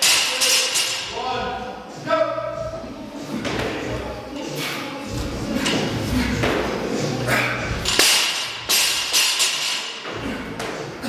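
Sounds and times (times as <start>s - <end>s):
background voices: 0.0s - 8.0s.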